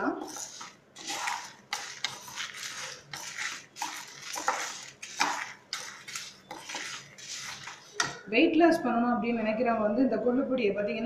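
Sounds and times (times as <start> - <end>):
lentils rustling in a pan: 0.0 - 8.3.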